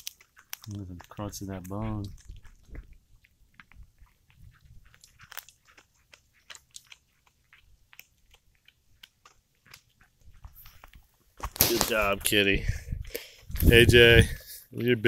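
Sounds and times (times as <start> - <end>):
cat chewing bones: 0.0 - 11.4.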